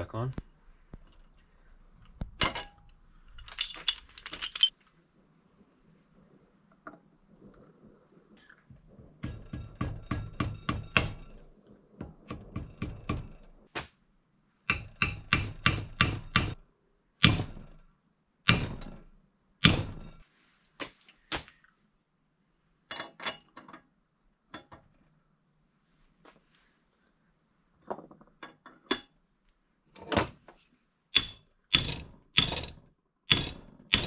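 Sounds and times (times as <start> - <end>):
hammer tapping metal: 14.7 - 16.6, 31.2 - 34.0.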